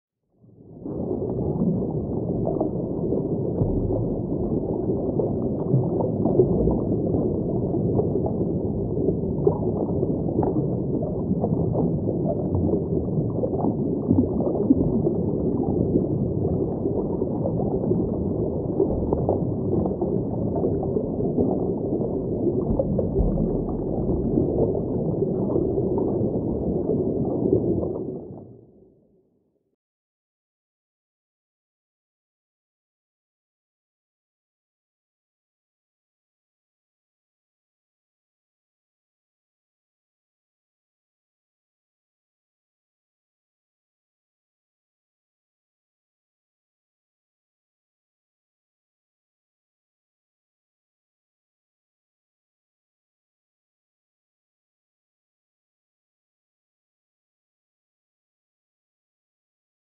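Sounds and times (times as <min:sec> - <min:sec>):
muffled underwater rumble: 0:00.3 - 0:29.4
crackling bubbles: 0:00.4 - 0:28.8.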